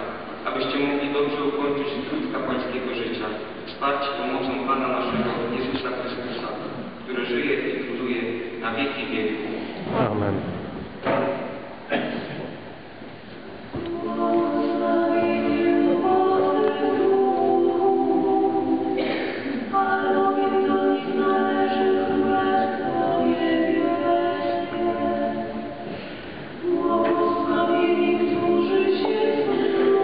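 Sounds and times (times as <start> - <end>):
congregation singing a hymn: 13.7 - 30.0.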